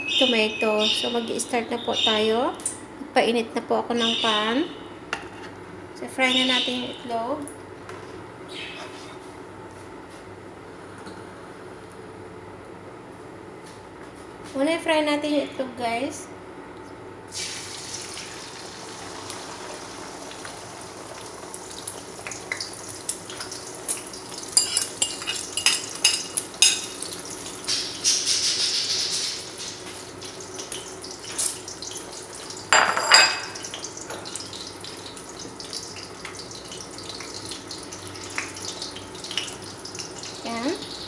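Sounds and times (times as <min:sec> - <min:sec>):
eggs sizzling in hot oil: 0:17.3 - 0:41.0
kitchenware clinking: 0:24.6 - 0:27.1, 0:32.7 - 0:34.3.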